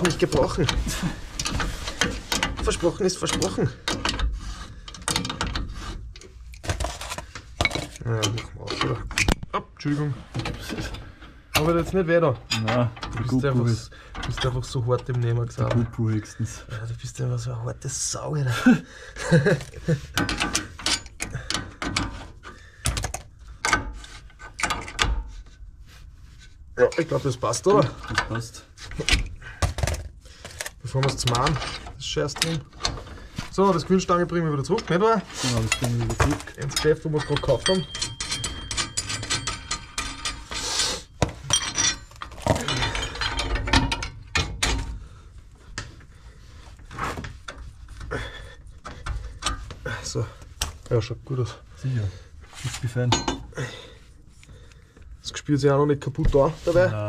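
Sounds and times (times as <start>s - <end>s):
metallic clicks and rattles: 0.0s - 9.5s, 19.3s - 25.3s, 27.7s - 45.0s
steel tool parts clinking: 34.8s - 44.8s.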